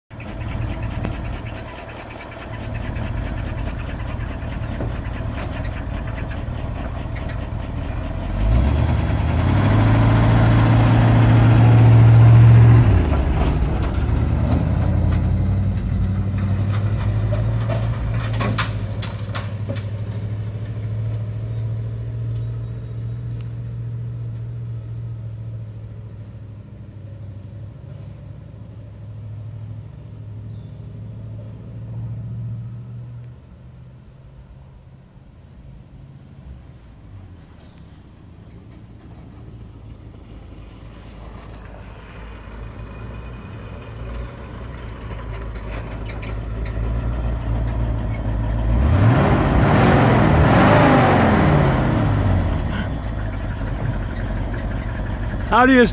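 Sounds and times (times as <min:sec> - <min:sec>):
truck engine revving: 0:00.1 - 0:25.9, 0:37.6 - 0:55.9.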